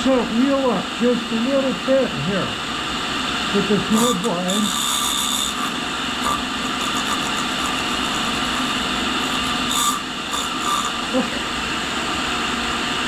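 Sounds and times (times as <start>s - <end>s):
grinder grinding hiss: 3.2s - 11.8s
sharp scrapes: 3.9s - 11.2s.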